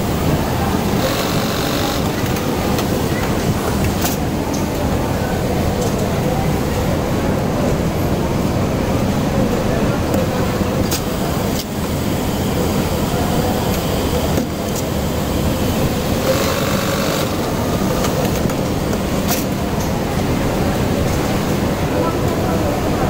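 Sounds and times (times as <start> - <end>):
sewing machinery running: 0.0 - 2.7, 14.8 - 19.5
sharp machine clicks: 1.0 - 2.5, 16.2 - 18.4.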